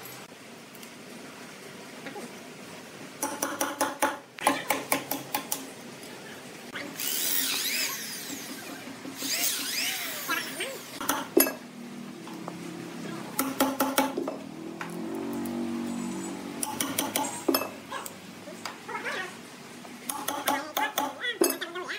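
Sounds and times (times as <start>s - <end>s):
electric drill boring into log: 7.0s - 11.0s
hammer striking steel staples: 16.6s - 17.7s.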